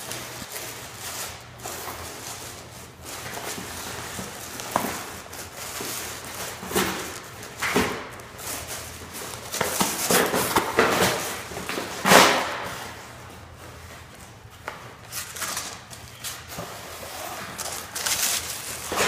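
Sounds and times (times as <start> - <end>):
cardboard ripping: 15.1 - 19.0.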